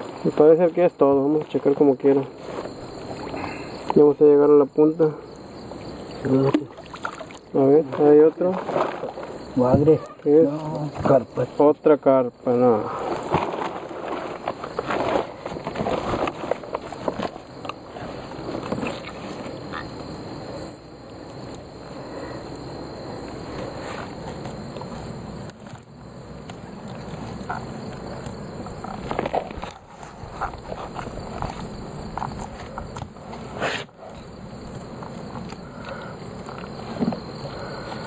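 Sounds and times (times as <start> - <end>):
night insects chirping: 0.0 - 38.0
knocks and rustles of net: 6.5 - 10.0, 13.0 - 19.4.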